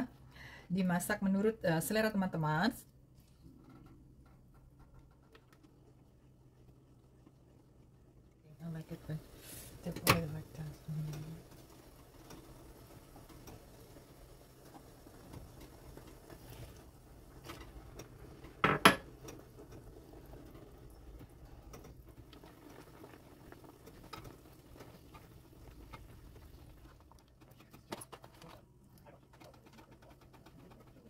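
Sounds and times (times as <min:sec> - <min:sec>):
faint steady hum: 0:00.0 - 0:29.6
spatula stirring bubbling sauce: 0:10.6 - 0:27.5
utensil clattering on pan: 0:17.4 - 0:19.8.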